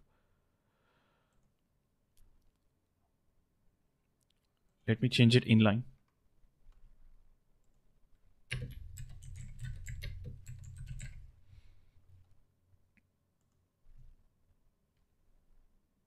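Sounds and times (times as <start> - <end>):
typing on keyboard: 8.5 - 11.4.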